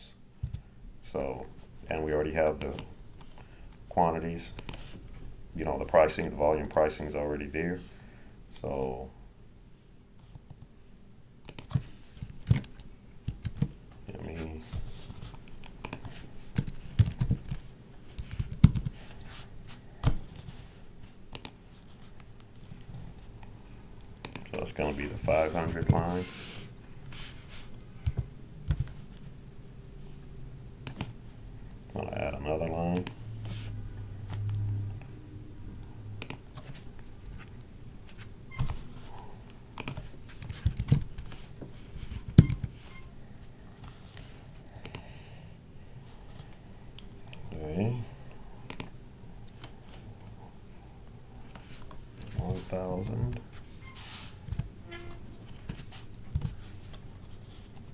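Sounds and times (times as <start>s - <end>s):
low hum: 33.1s - 36.3s.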